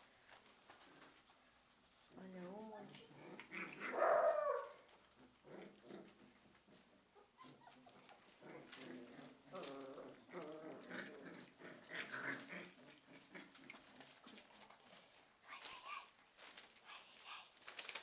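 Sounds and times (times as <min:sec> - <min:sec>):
puppies growling and grunting: 0:02.8 - 0:15.0.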